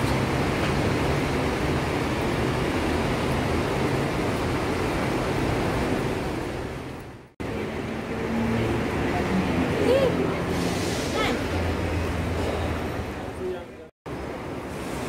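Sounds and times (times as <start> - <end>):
terminal ambience rumble and hiss: 8.8 - 15.0.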